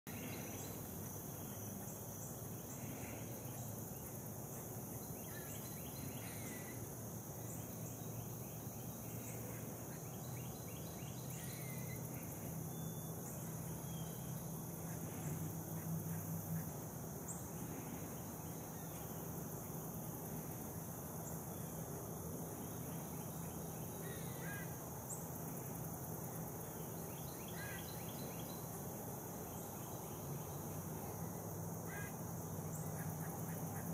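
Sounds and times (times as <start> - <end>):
steady hiss: 0.1 - 33.9
bird calls and chirps: 4.9 - 19.2.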